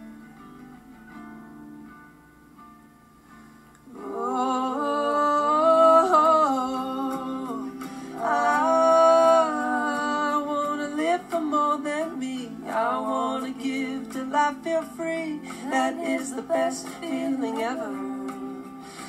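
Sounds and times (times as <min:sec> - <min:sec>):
wordless held vocal notes: 0:03.9 - 0:19.0.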